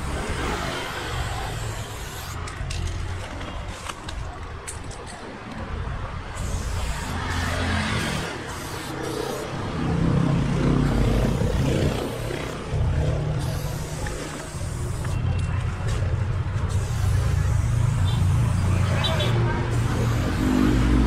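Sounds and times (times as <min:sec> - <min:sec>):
spray paint can hissing: 0:00.1 - 0:04.9, 0:06.3 - 0:09.7, 0:10.9 - 0:15.4, 0:16.6 - 0:21.0.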